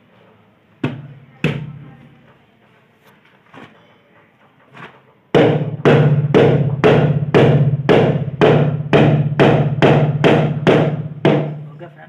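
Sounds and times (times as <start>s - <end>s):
drum beat: 5.4s - 11.7s.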